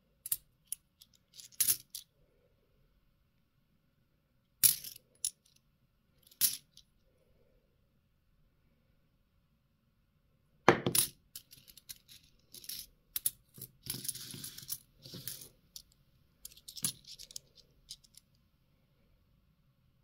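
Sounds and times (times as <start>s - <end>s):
coins rattling: 0.3s - 2.0s, 11.0s - 18.2s
coins clinking: 11.0s - 15.5s, 16.4s - 18.2s.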